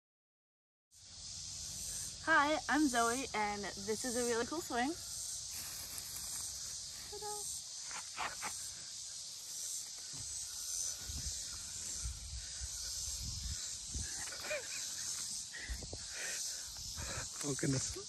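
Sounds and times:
insect chorus: 0.9s - 18.0s
wind buffeting microphone: 11.0s - 14.5s, 15.6s - 16.1s.

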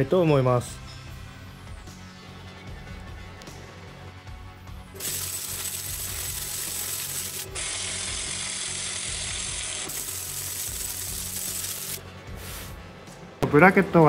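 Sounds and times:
welding arc crackling: 4.9s - 12.0s.

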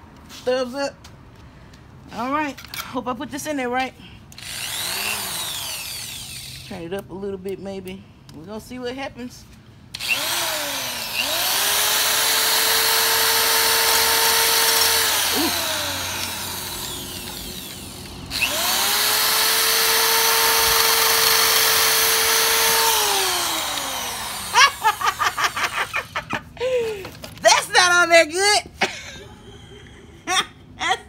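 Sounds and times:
electric drill whining: 4.4s - 6.7s, 9.9s - 26.1s.

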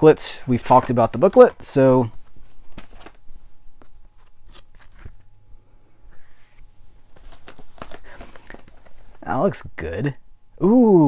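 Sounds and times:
packaging rustle: 0.6s - 3.2s, 7.1s - 9.3s.

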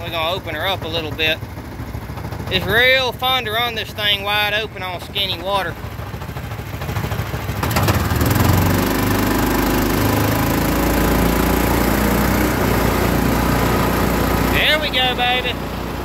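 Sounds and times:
small gas engine revving: 7.5s - 16.0s.

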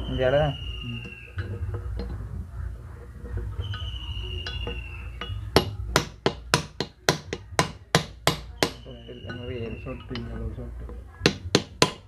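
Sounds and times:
hammer tapping on metal: 4.4s - 10.4s, 11.2s - 12.0s.

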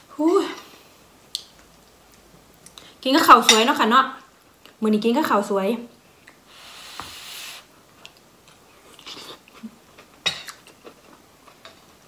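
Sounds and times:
breath blowing on food: 6.5s - 7.7s.

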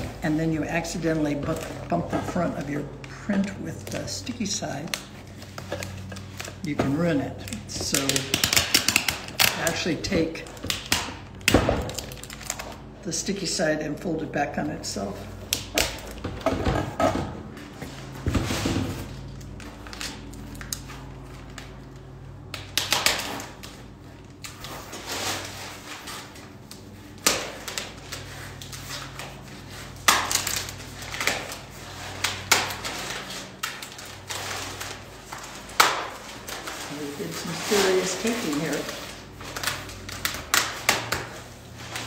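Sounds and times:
plastic crinkling: 0.0s - 12.9s, 18.9s - 42.0s
packing tape peeling: 0.8s - 12.9s, 17.6s - 42.0s
cardboard handling: 23.2s - 42.0s.

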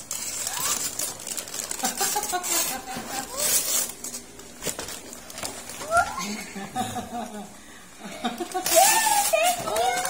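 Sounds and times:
wrapping paper tearing: 0.0s - 6.1s, 8.4s - 10.0s.

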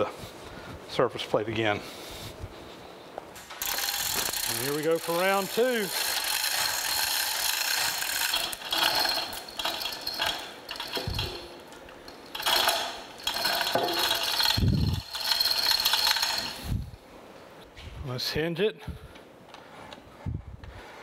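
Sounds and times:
hoist chain rattling: 3.5s - 16.8s.

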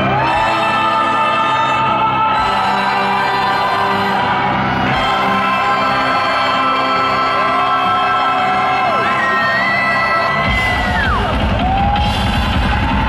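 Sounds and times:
long shouted whoop: 7.8s - 13.0s
thrash metal band playing live: 10.3s - 13.0s.

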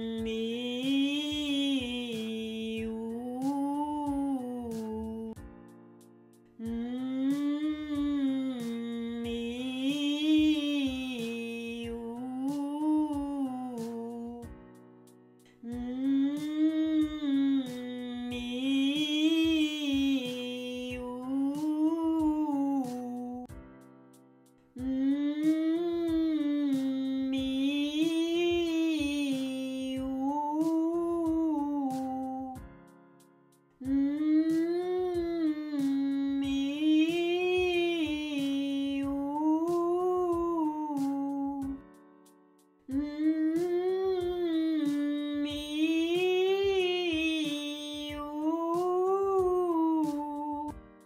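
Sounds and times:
woman singing a vocalise: 0.0s - 5.4s, 6.6s - 14.5s, 15.6s - 23.5s, 24.8s - 32.6s, 33.8s - 41.8s, 42.9s - 50.8s
quiet instrumental accompaniment: 0.0s - 51.0s.

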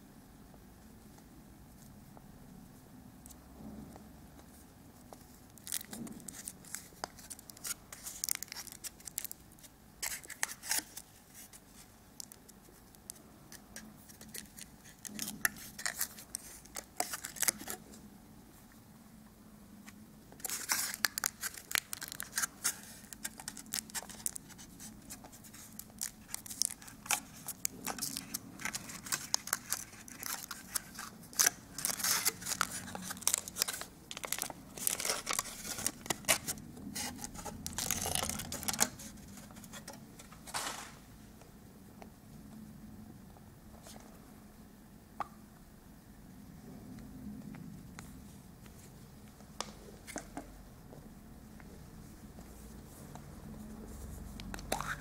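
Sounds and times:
foil wrapper crinkling: 5.6s - 11.1s, 14.2s - 17.8s, 20.4s - 39.9s.

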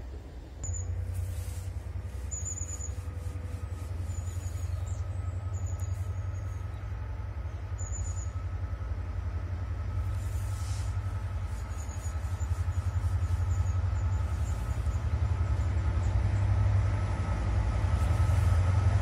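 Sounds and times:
locomotive low rumble: 0.0s - 19.0s
faint steady high tone: 0.5s - 1.4s.

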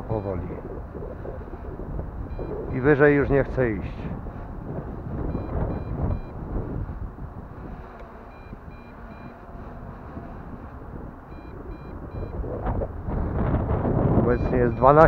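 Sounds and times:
wind rumbling on microphone: 0.0s - 15.0s
short high alarm beeps: 2.3s - 2.6s, 5.3s - 6.4s, 8.3s - 9.4s, 11.3s - 12.4s, 14.3s - 15.0s.

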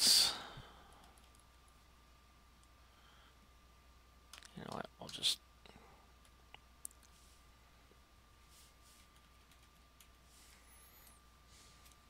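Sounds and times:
computer keyboard keystrokes: 9.2s - 10.2s
faint steady tone: 10.0s - 12.0s.

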